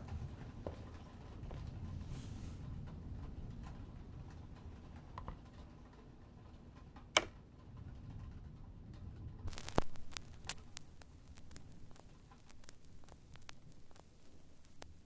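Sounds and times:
low steady hum: 0:00.0 - 0:15.0
vinyl record handling sounds: 0:09.5 - 0:15.0.

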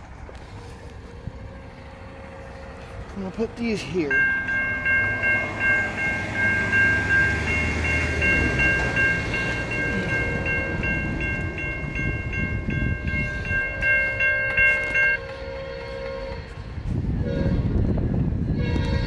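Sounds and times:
freight train rumble: 0:00.0 - 0:19.0
electronic crossing bell ringing: 0:03.6 - 0:15.3.

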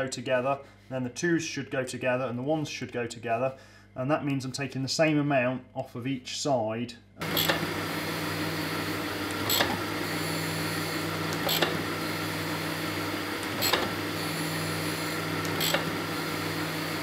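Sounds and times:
surface grinder humming: 0:07.2 - 0:17.0.

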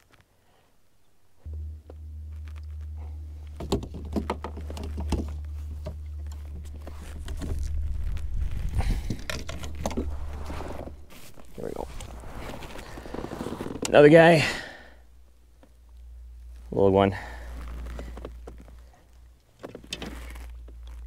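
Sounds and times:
steady low rumble: 0:01.4 - 0:21.0
rattling clicks and knocks: 0:03.5 - 0:07.8.

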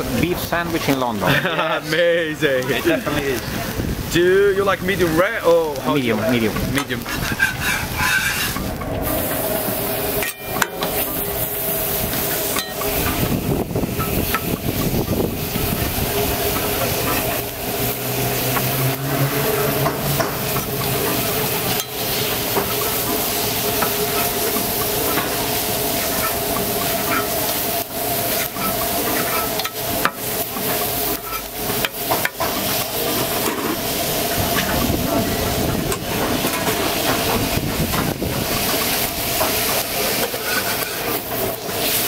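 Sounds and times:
steak sizzling on griddle: 0:00.0 - 0:42.0
metal scrapers on steel plate: 0:06.7 - 0:13.3, 0:28.3 - 0:33.8, 0:40.2 - 0:41.3.

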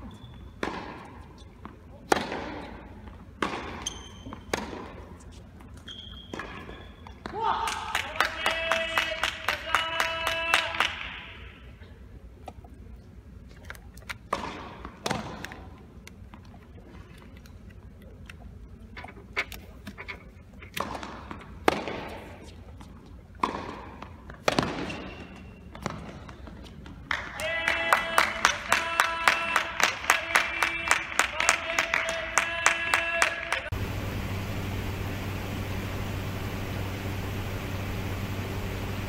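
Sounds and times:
tennis ball bouncing on court: 0:00.2 - 0:05.2, 0:05.8 - 0:07.4, 0:14.3 - 0:15.6, 0:20.7 - 0:22.2, 0:23.4 - 0:26.4
tennis ball hits echoing: 0:00.6 - 0:01.2, 0:02.1 - 0:02.7, 0:03.4 - 0:03.8, 0:04.5 - 0:05.0, 0:20.8 - 0:22.2, 0:23.4 - 0:25.0.

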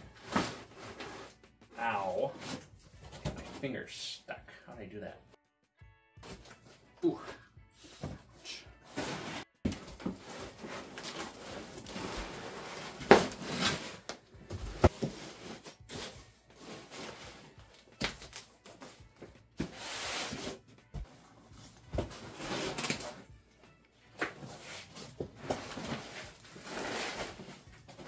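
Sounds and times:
machine parts and foam rubbing in box: 0:07.9 - 0:17.6, 0:19.6 - 0:23.3, 0:24.4 - 0:28.0.

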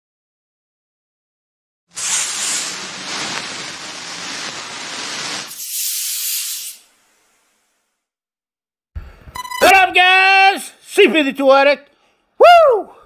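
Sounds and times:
hissing spray: 0:01.9 - 0:07.9.

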